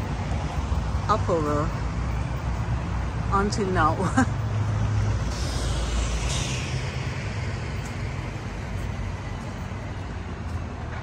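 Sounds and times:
road traffic rumbling: 0:00.0 - 0:11.0
vehicle passing hiss: 0:04.4 - 0:10.0.

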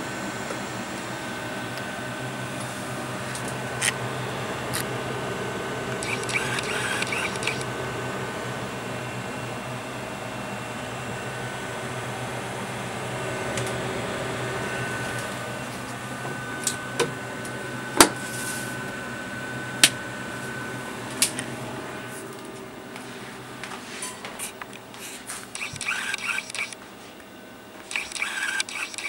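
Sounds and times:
high motor whine: 0:00.0 - 0:29.0
small electric motor humming: 0:01.3 - 0:09.0, 0:25.5 - 0:26.8, 0:27.8 - 0:29.0
sharp clicks: 0:06.0 - 0:07.7, 0:25.6 - 0:26.8, 0:27.8 - 0:29.0.

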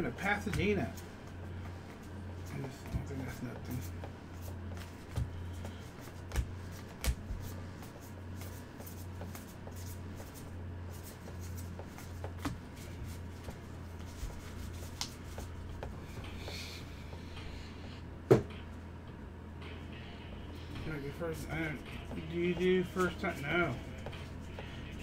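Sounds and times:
cards clicking and rustling: 0:04.7 - 0:15.9.

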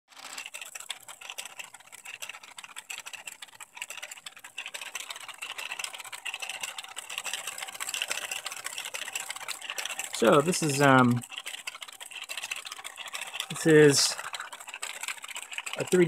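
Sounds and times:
plastic track links clattering: 0:00.1 - 0:16.0
faint motor hum: 0:00.2 - 0:16.0.

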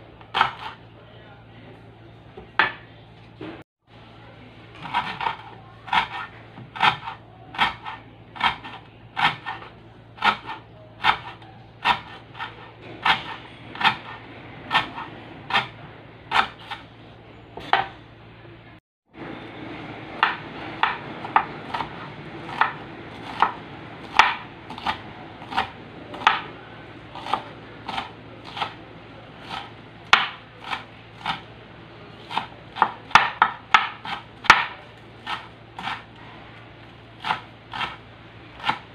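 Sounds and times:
knife chopping on wooden board: 0:00.3 - 0:00.8, 0:04.8 - 0:16.8, 0:20.2 - 0:26.4, 0:27.2 - 0:28.8, 0:29.4 - 0:31.5, 0:32.2 - 0:36.1, 0:37.2 - 0:38.0, 0:38.6 - 0:38.9.

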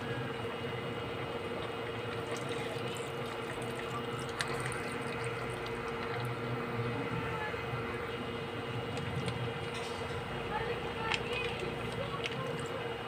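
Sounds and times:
liquid bubbling in a pot: 0:00.0 - 0:09.8.

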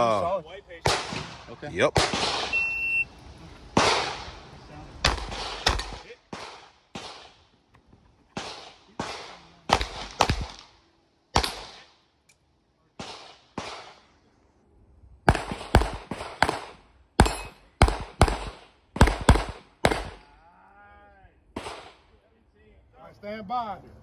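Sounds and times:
handgun shots: 0:05.0 - 0:07.3, 0:08.4 - 0:10.7, 0:11.4 - 0:11.8, 0:15.3 - 0:20.2.

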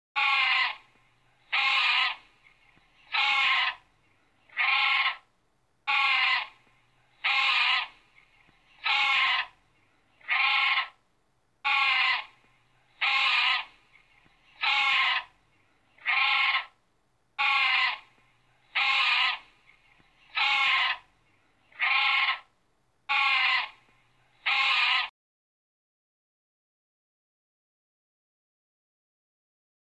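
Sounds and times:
grebe calling harshly: 0:01.5 - 0:02.2, 0:03.1 - 0:03.8, 0:04.6 - 0:05.2, 0:05.9 - 0:06.6, 0:07.2 - 0:08.0, 0:08.8 - 0:09.5, 0:10.3 - 0:11.0, 0:11.7 - 0:12.3, 0:13.0 - 0:13.8, 0:14.6 - 0:15.3, 0:16.0 - 0:16.7, 0:17.4 - 0:18.0, 0:18.8 - 0:19.5, 0:20.4 - 0:21.1, 0:21.8 - 0:22.5, 0:23.1 - 0:23.8, 0:24.5 - 0:25.1.

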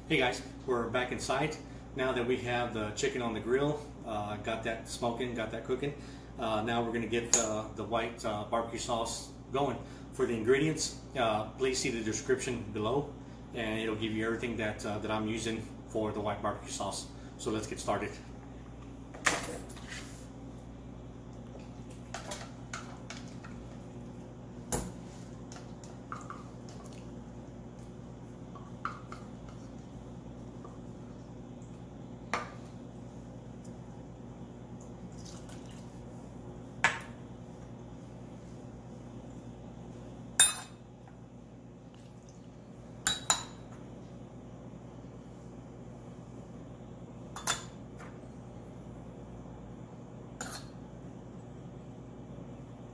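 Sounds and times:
utensil clinking on steel bowl: 0:40.4 - 0:40.8.

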